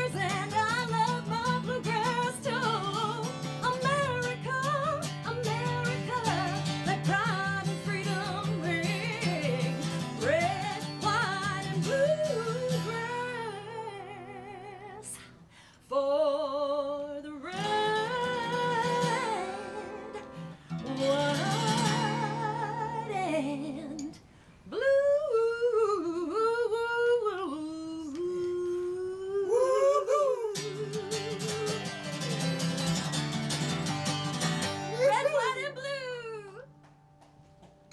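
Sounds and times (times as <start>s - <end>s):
strummed acoustic guitar: 0.0s - 14.9s, 17.5s - 24.1s, 30.6s - 37.9s
woman singing with vibrato: 0.0s - 32.8s, 34.8s - 36.7s.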